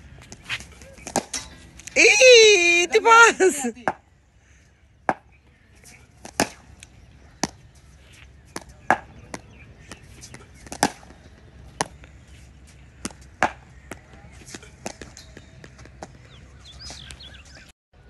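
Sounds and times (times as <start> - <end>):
cricket ball striking bat: 8.6 - 10.0, 13.0 - 14.0
ball bouncing on concrete: 13.0 - 16.2.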